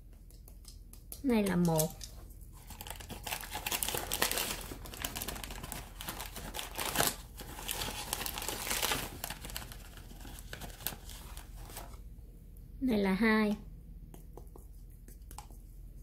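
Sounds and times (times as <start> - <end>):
packaging crinkling: 2.6 - 12.0.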